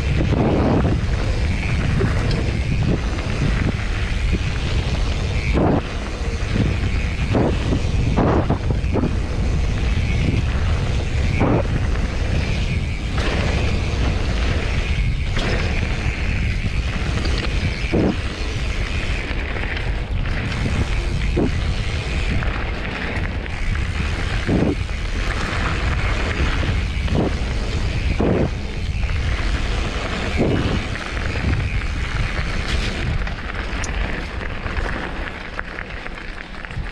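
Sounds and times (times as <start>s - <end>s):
bike knocks and rattles: 0.0s - 36.9s
tyres rolling on gravel: 0.0s - 36.9s
wind buffeting microphone: 0.0s - 36.9s.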